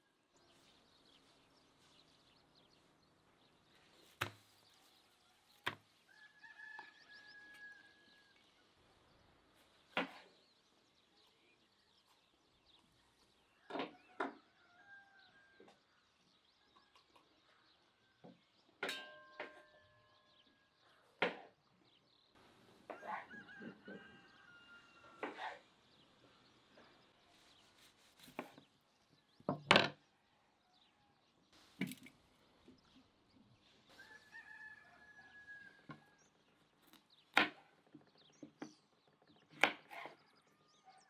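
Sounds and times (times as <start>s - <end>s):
rooster crowing: 6.1s - 8.2s, 22.9s - 25.3s, 33.9s - 36.2s.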